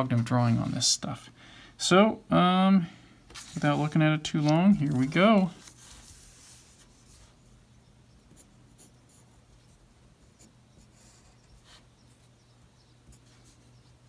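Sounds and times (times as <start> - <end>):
pencil sketching on paper: 10.3 - 11.9.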